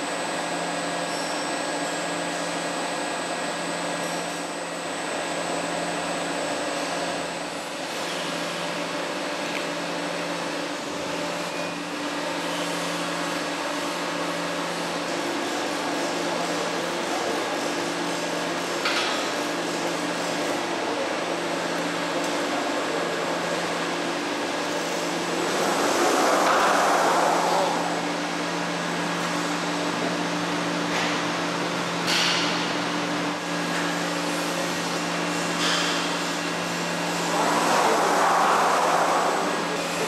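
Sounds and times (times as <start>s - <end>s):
machine hum: 22.8s - 31.7s, 33.1s - 40.0s.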